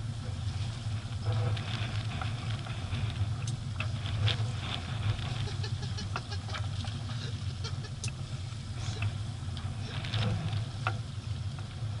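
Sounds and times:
boat engine droning: 0.0 - 12.0
light ticks: 3.4 - 3.9, 8.0 - 8.2.

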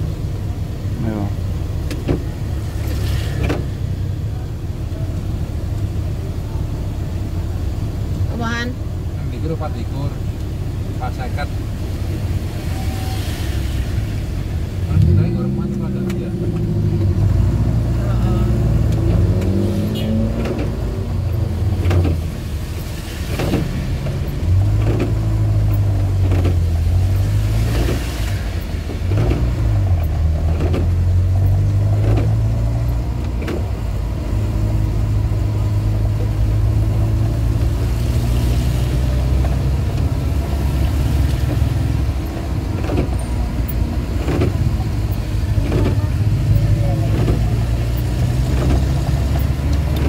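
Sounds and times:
car engine in traffic: 0.0 - 50.0
windscreen wipers knocking: 1.7 - 2.6, 20.3 - 22.4, 23.3 - 28.1, 28.8 - 34.2, 39.0 - 50.0
heavy rain hissing: 10.7 - 18.9.

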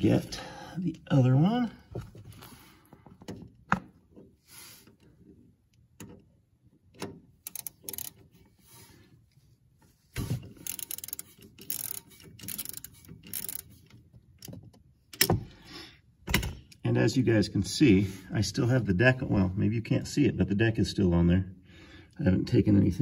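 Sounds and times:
socket ratchet clicking: 7.0 - 8.2, 10.6 - 13.7.

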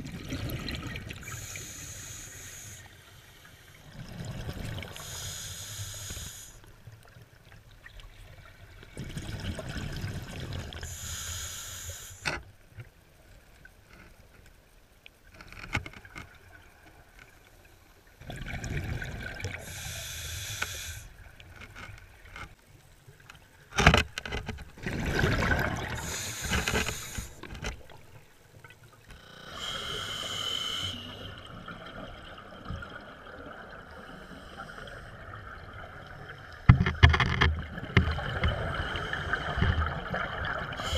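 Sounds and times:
underwater bubbling: 0.0 - 12.3, 16.3 - 23.7, 24.5 - 40.9
regulator hiss: 1.2 - 3.8, 5.0 - 6.7, 10.8 - 12.4, 19.6 - 21.2, 26.0 - 27.5, 29.3 - 31.3.

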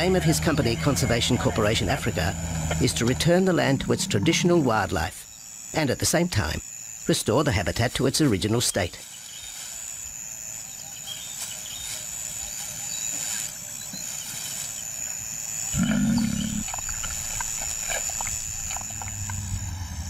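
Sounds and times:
lion growling: 0.0 - 4.6, 15.7 - 17.1
high insect buzz: 0.0 - 20.0.

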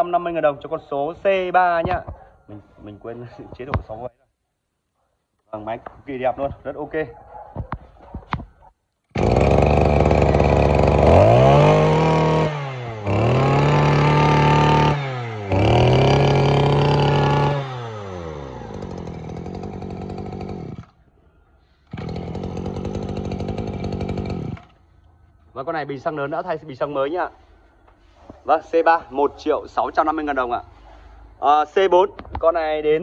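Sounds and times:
brush cutter engine revving: 9.1 - 21.0, 21.9 - 24.9.

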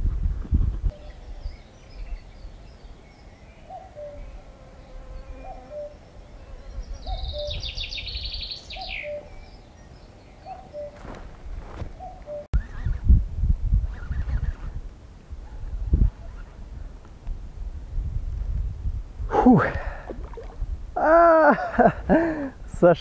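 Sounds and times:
low wind rumble: 0.0 - 3.4, 6.1 - 22.8
bird trilled song: 6.7 - 11.1.

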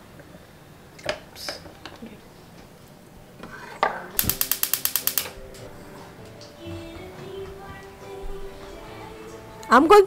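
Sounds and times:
rapid sharp clicks: 4.2 - 5.4.

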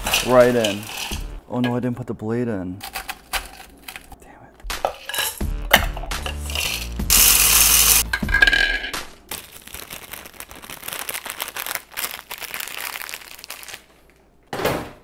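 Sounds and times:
snack bag crackling: 9.2 - 14.2
snacks poured into plastic bowl: 9.3 - 13.8.

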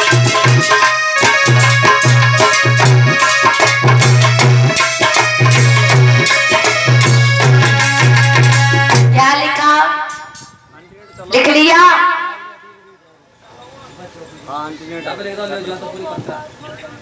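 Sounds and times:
dholak drum rhythm: 0.0 - 10.6, 15.8 - 16.6
harmonium melody: 0.0 - 10.6.

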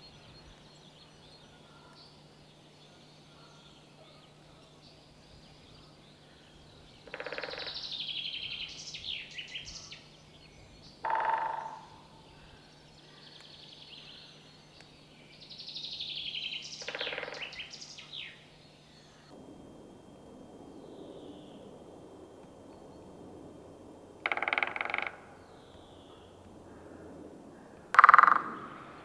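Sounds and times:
small birds singing: 0.0 - 19.4, 24.4 - 27.0
woodpecker drumming on wood: 7.0 - 7.8, 11.0 - 12.0, 16.8 - 17.6, 24.2 - 25.4, 27.9 - 28.8.

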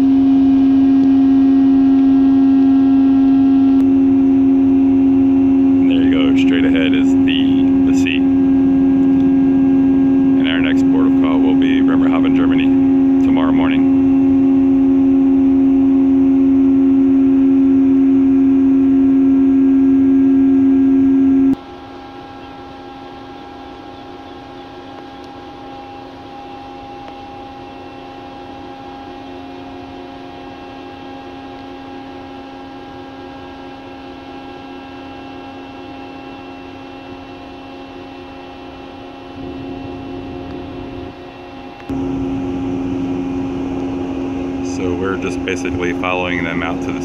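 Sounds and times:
machinery hum: 0.0 - 47.0.

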